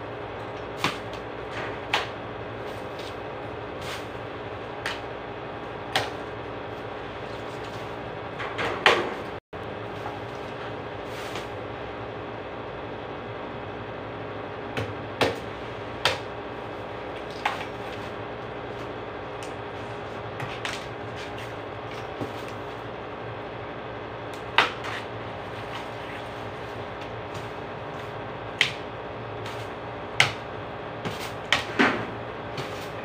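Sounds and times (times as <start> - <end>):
steady background hum: 0.0 - 33.0.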